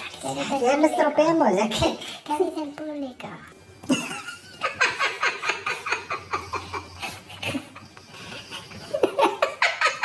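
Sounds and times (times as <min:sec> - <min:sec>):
men laughing: 0:03.8 - 0:10.0.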